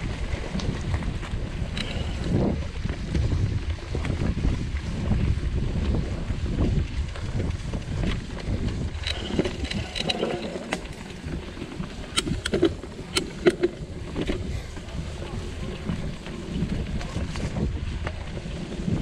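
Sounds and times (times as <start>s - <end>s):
mountain bike rumbling on dirt: 0.0s - 19.0s
wind buffeting microphone: 0.0s - 19.0s
sharp rattling clicks: 1.8s - 2.2s, 9.0s - 14.4s.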